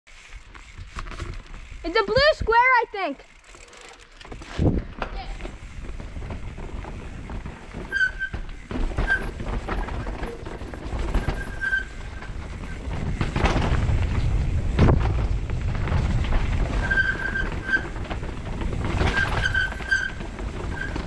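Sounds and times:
bike knocks and rattles: 0:00.1 - 0:02.4, 0:03.3 - 0:21.0
bike tyres rolling over roots and rocks: 0:00.1 - 0:21.0
high-pitched brake squeals: 0:07.9 - 0:08.4, 0:11.2 - 0:12.0, 0:16.8 - 0:17.9
wind rumble on microphone: 0:12.1 - 0:21.0.

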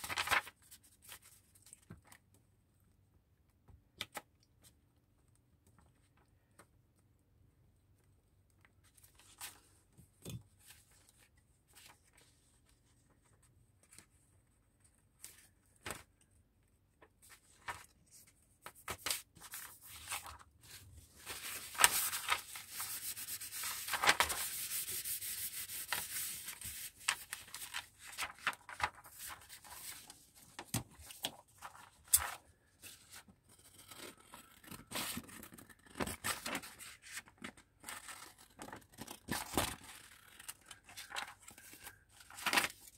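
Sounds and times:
paper rustling and rubbing: 0:00.0 - 0:01.4, 0:17.2 - 0:42.9.

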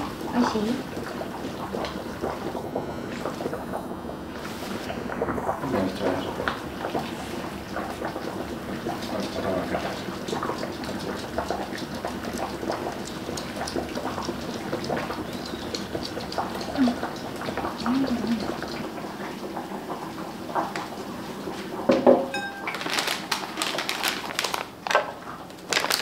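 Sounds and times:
steady low hum: 0:00.0 - 0:09.0
utensils clinking on bowls: 0:22.3 - 0:23.3.

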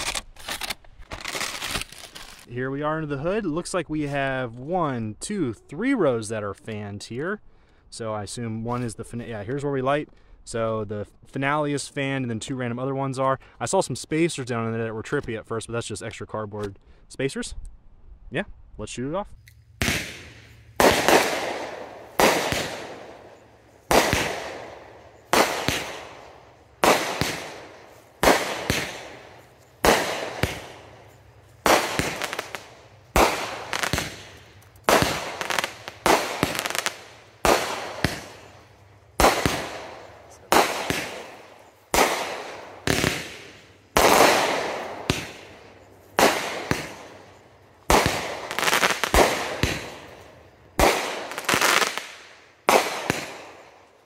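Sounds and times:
firework crackling: 0:01.2 - 0:02.5, 0:19.8 - 0:53.7
firework bangs: 0:19.8 - 0:53.7.

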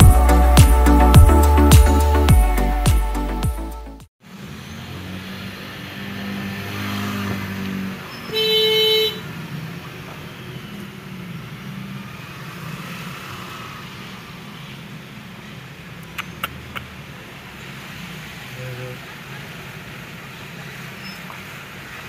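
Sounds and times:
car engine and road noise: 0:00.0 - 0:22.0
vehicle horn: 0:08.3 - 0:09.3.

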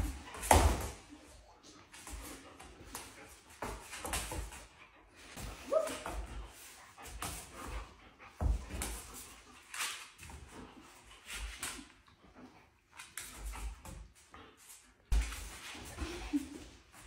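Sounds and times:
dog whimpering excitedly: 0:05.5 - 0:06.3
dog whining: 0:05.6 - 0:06.2.

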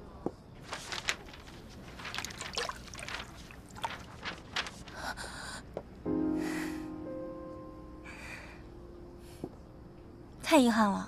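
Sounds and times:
paper dropping onto water: 0:00.6 - 0:05.0
small splashes and sloshing: 0:01.0 - 0:04.7.

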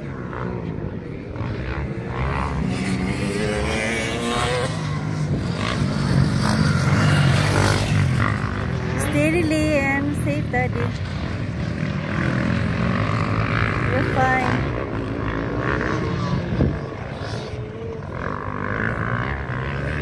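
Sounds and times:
motocross engines revving: 0:00.0 - 0:20.0.

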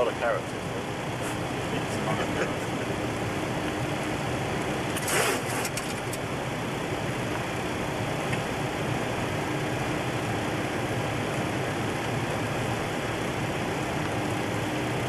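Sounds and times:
short crackle: 0:04.9 - 0:06.2.

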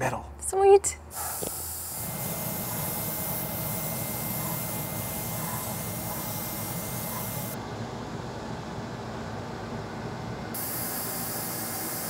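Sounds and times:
airbrush spraying hiss: 0:01.1 - 0:07.6, 0:10.6 - 0:12.0.

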